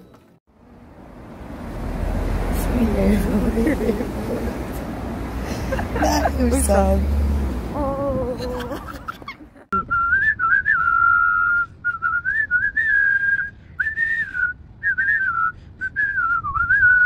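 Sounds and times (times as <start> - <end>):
person whistling a melody: 9.8 - 17.0.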